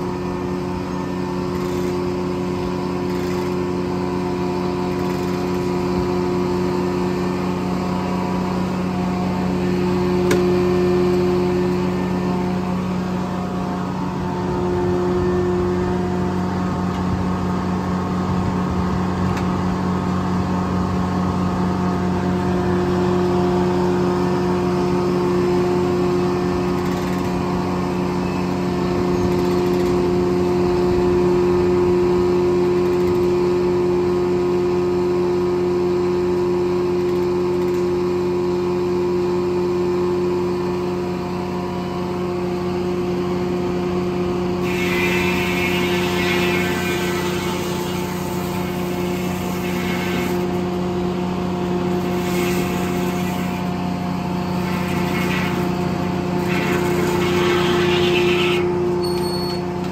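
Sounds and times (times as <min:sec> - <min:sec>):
sawmill circular blade droning: 0:00.0 - 0:59.9.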